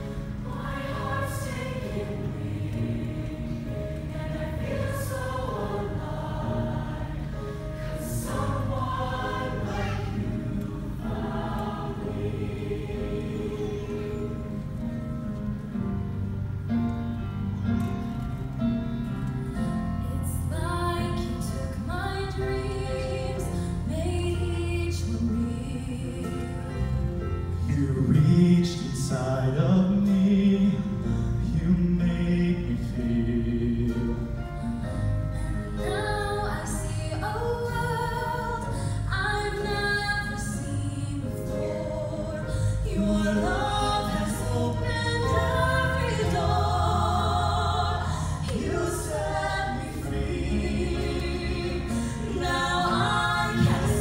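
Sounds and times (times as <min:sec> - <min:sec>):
choir singing: 0:00.0 - 0:15.0, 0:31.6 - 0:54.0.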